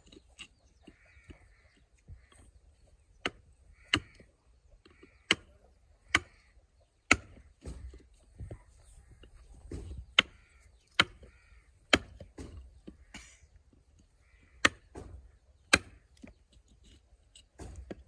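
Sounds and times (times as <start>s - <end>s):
sharp knocks: 14.6s - 16.0s.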